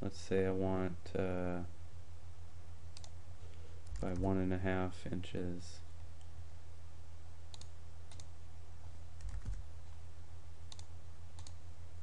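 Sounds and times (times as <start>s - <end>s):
steady low hum: 0.0s - 12.0s
mouse and keyboard clicks: 10.7s - 11.6s.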